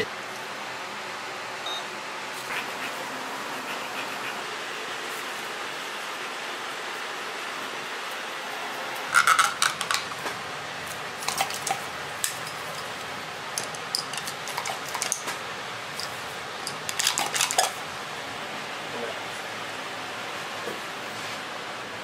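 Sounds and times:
plastic cups and hand pump clicking: 9.2s - 10.1s, 13.6s - 15.2s, 16.7s - 17.7s.

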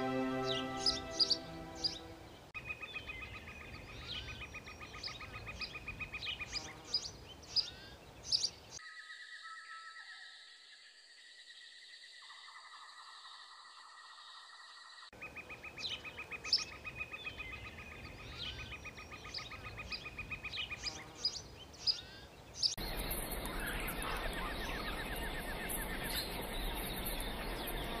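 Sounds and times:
steady high tone: 0.0s - 2.4s
birds chirping: 0.0s - 8.8s, 15.2s - 28.0s.

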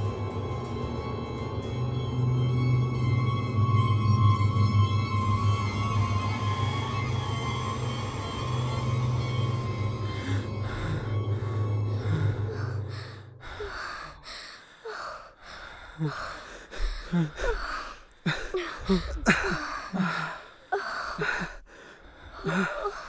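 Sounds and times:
low music drone: 0.0s - 23.0s
people panting and gasping: 10.1s - 23.0s.

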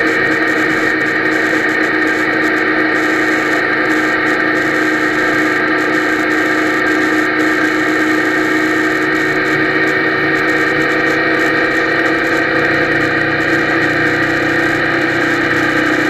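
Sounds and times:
held tones: 0.0s - 16.0s
motorcycle engine cruising: 0.0s - 16.0s
road and wind noise: 0.0s - 16.0s.

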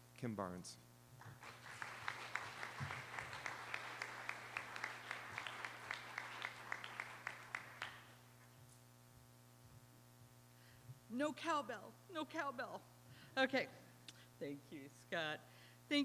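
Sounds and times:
audience applauding: 1.2s - 8.2s
single sharp claps: 1.2s - 8.2s.

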